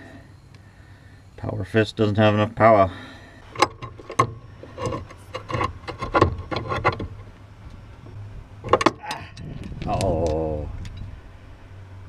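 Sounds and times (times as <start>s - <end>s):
metal clicks and knocks: 3.5s - 7.3s, 8.6s - 11.1s.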